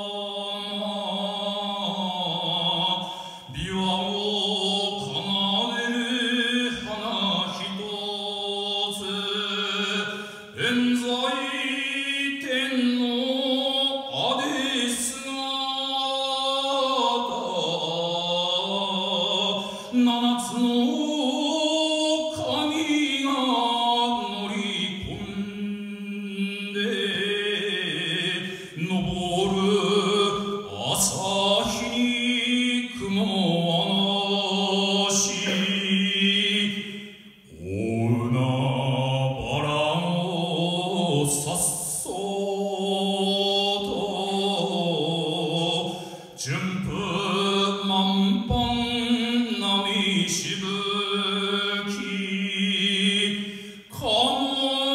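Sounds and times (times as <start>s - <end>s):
man singing into a microphone: 0.0s - 54.9s
man breathing: 3.0s - 3.5s, 10.1s - 10.5s, 28.5s - 28.8s, 45.9s - 46.4s, 53.4s - 53.9s.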